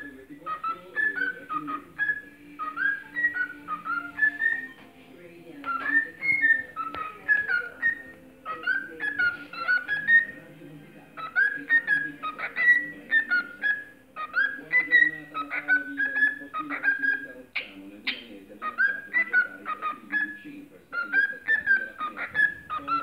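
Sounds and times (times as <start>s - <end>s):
cockatiel whistling: 0.0s - 4.8s, 5.6s - 10.4s, 11.2s - 23.0s.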